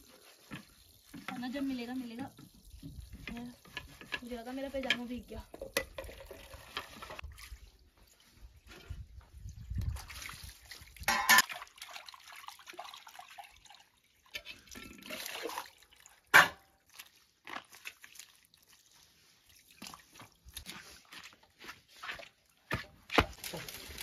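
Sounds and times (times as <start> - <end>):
water pouring and splashing: 0.0 - 24.0
dishes clinking: 11.1 - 11.5
metal utensils clanking: 11.1 - 11.5.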